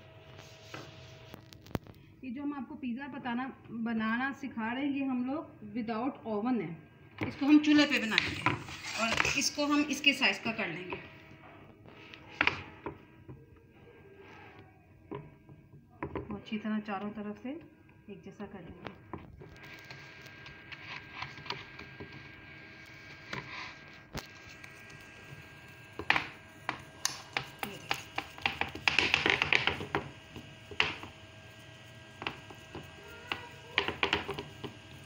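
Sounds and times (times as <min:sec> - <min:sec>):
hands patting dough: 0:26.0 - 0:35.0.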